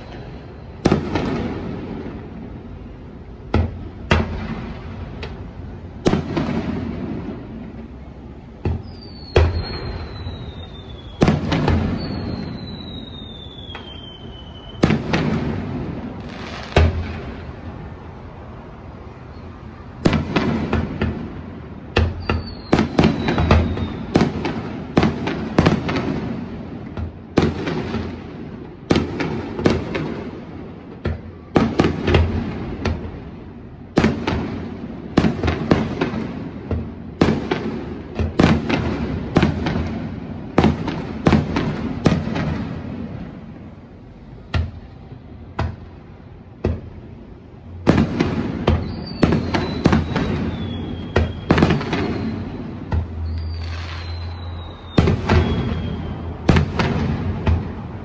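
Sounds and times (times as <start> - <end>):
fireworks whistles sliding down: 0.0 - 1.0, 8.7 - 15.2, 22.1 - 24.4, 48.7 - 56.7
fireworks booming: 0.0 - 58.0.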